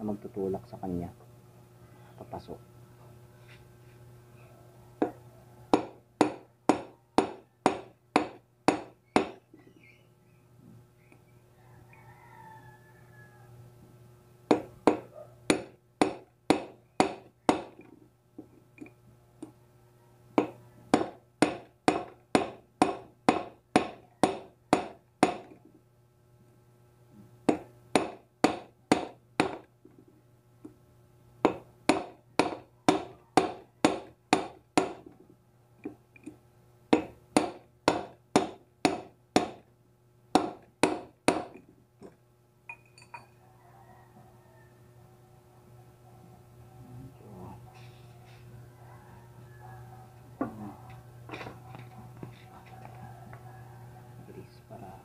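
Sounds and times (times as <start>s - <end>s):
hammer tapping steel pipe: 5.0s - 9.4s.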